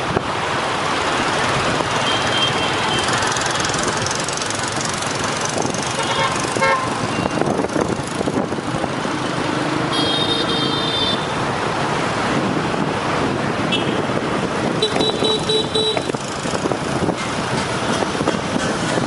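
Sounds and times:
traffic engines and road noise: 0.0 - 19.0
vehicle horn beeps: 9.9 - 11.3, 14.8 - 16.1.

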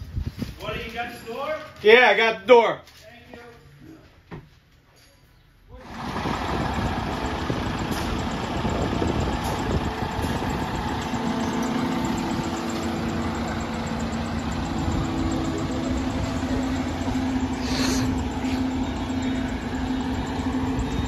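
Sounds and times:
diesel engine idling: 5.8 - 21.0
steady hum: 8.6 - 21.0.

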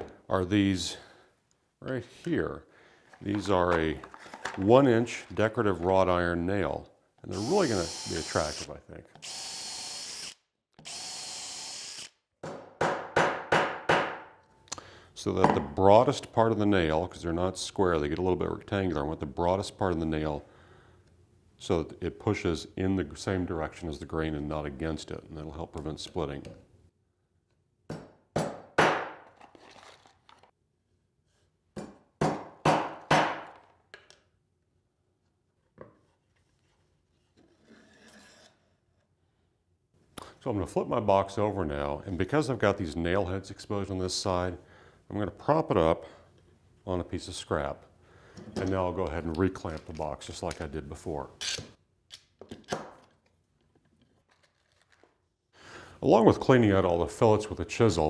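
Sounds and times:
cordless drill drilling wood: 7.3 - 12.2
hammer driving a nail: 12.4 - 14.3, 31.8 - 33.6.

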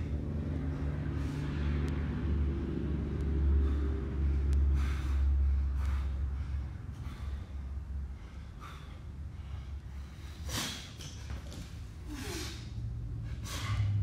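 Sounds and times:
low drone: 0.0 - 10.9
man breathing hard: 0.0 - 11.1, 11.8 - 14.0.

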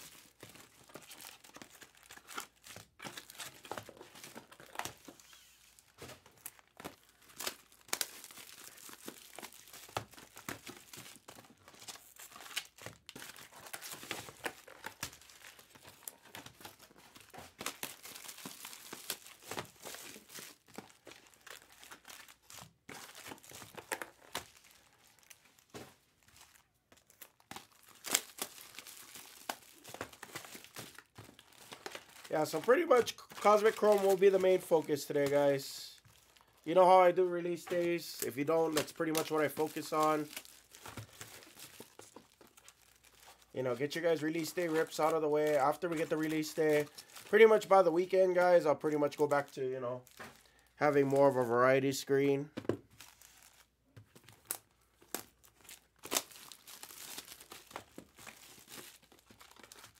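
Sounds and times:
foil wrappers crinkling and tearing: 0.0 - 52.2, 52.8 - 59.9.

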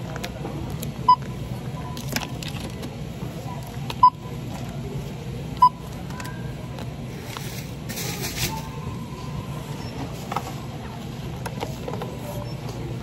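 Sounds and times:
store background noise: 0.0 - 13.0
barcode scanner beeps: 1.0 - 2.1, 4.0 - 4.3, 5.6 - 5.9.

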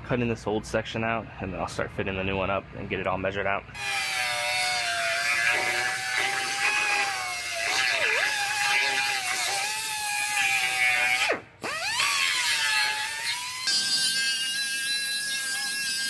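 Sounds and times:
abrasive wheel cutting steel: 3.8 - 16.0.

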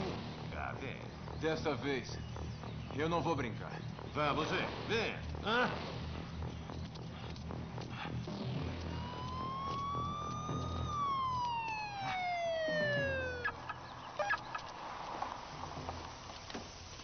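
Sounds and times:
siren-like wail: 8.7 - 14.6.

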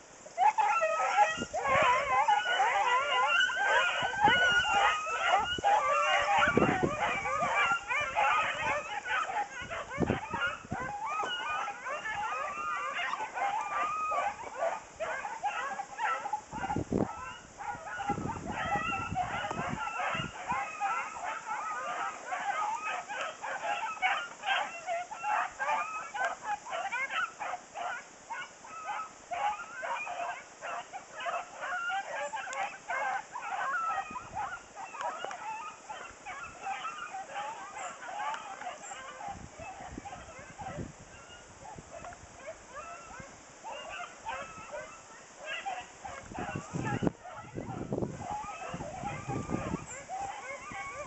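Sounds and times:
hounds baying and yipping: 0.0 - 51.0
wind buffeting microphone: 1.1 - 15.1, 16.4 - 21.3, 34.0 - 34.6, 39.1 - 43.4, 46.0 - 51.0.

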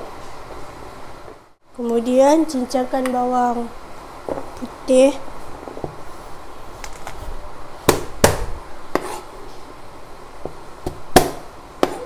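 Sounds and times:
knife chopping on plastic board: 10.4 - 12.0.

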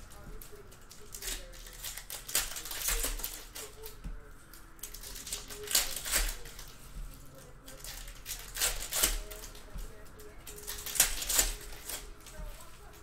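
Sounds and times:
foil wrapper tearing and crinkling: 0.4 - 4.0, 4.8 - 6.8, 7.7 - 9.6, 10.4 - 12.4.

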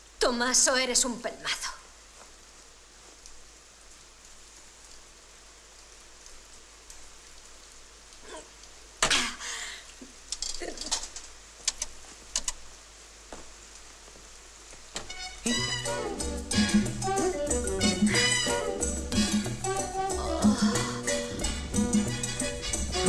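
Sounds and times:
faint hiss: 0.0 - 23.0.

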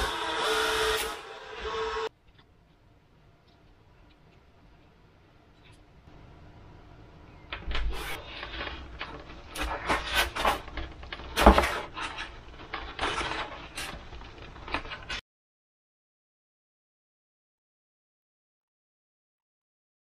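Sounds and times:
foam parts rubbing and scraping: 7.8 - 15.2.

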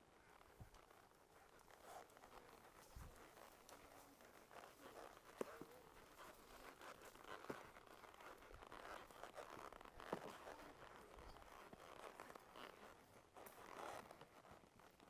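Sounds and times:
horse hooves knocking on trail: 0.0 - 15.0.

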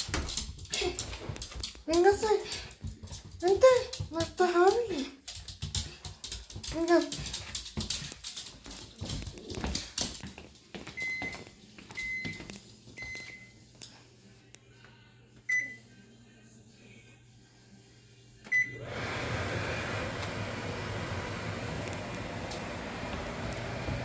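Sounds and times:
footsteps: 0.0 - 13.5, 21.9 - 24.0.

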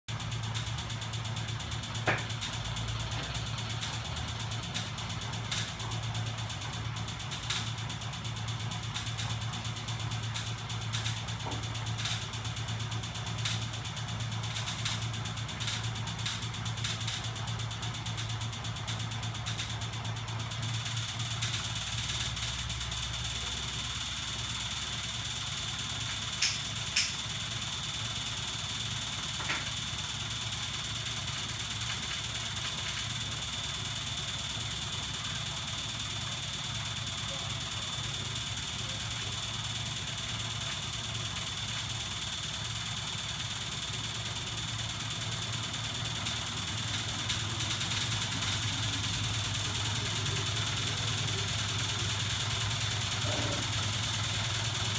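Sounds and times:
mechanical hum: 0.1 - 54.9
thin high motor whine: 0.1 - 54.9.

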